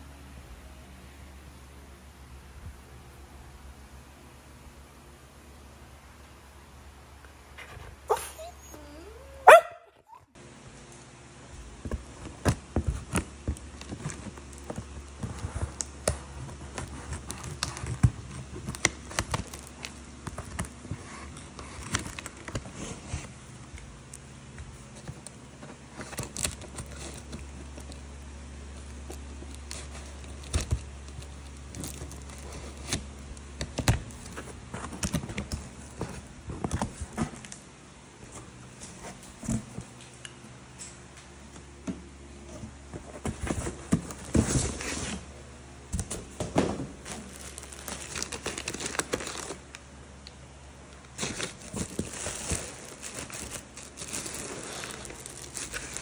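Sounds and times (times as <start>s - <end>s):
packing tape and cardboard ripping: 12.3s - 23.3s, 24.8s - 36.0s, 47.0s - 49.8s, 51.0s - 56.0s
plastic wrapping crinkling: 12.3s - 37.6s, 47.0s - 49.9s, 50.8s - 56.0s.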